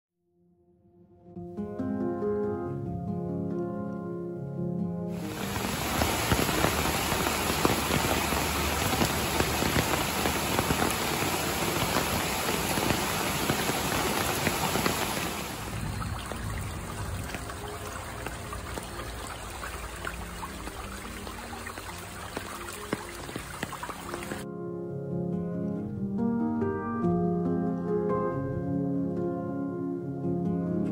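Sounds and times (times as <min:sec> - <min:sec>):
rain falling on path and foliage: 0:05.2 - 0:24.4.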